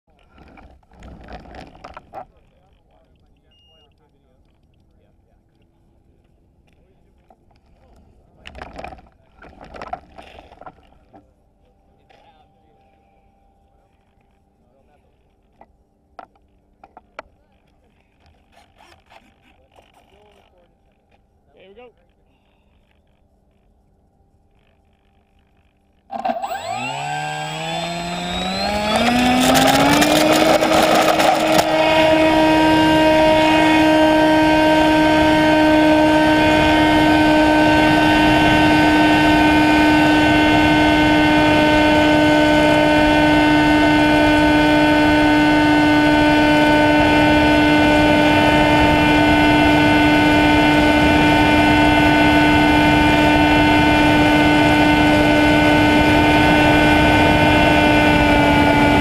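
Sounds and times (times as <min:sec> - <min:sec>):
rough rattle: 0:00.1 - 0:03.0, 0:25.6 - 0:32.2
drone motor and propeller whine: 0:23.0 - 0:59.0.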